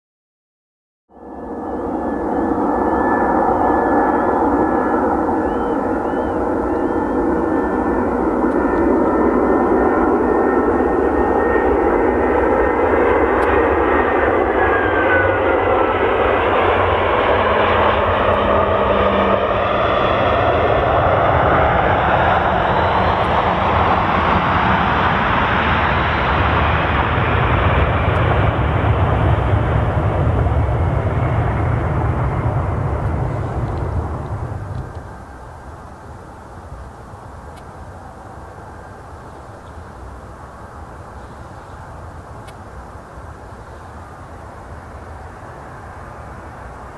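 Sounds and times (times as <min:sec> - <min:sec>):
falling engine whine: 0:01.1 - 0:46.9
jet engines running: 0:01.1 - 0:46.9
deep rumble: 0:26.2 - 0:35.2.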